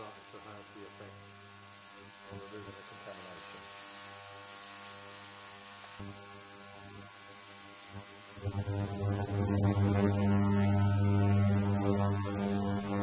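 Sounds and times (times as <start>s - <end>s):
ultrasonic cleaner humming: 5.6s - 13.0s
high hiss: 5.8s - 13.0s.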